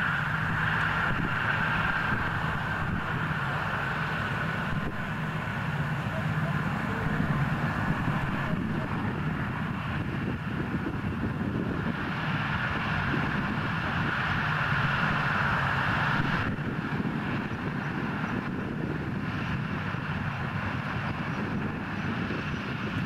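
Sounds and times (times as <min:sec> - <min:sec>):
propeller plane engines droning: 0:00.0 - 0:23.0.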